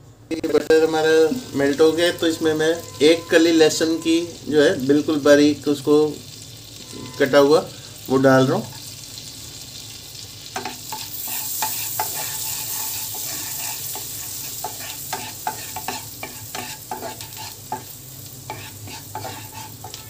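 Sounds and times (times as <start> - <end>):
garlic sizzling in butter: 0.9 - 20.0
wooden spatula scraping pan: 10.9 - 17.9, 18.5 - 20.0.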